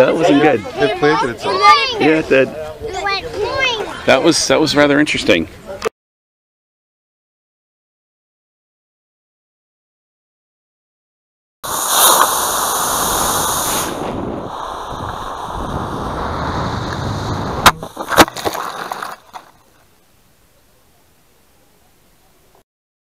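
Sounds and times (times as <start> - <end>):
rush of air: 11.6 - 19.2.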